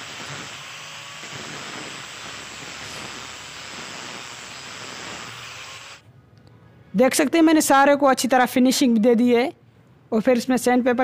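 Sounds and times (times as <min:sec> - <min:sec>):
angle grinder grinding wood: 0:00.0 - 0:06.0.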